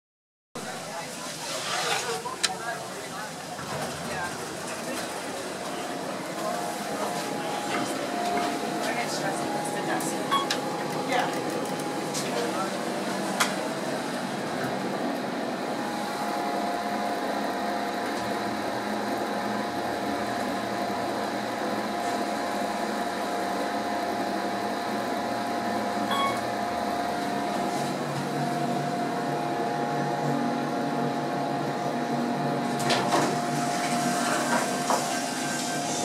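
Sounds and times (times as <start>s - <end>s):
elevator mechanical hum: 2.2s - 36.0s
steady whine: 6.0s - 21.8s
elevator ding: 7.4s - 12.0s, 26.0s - 26.7s.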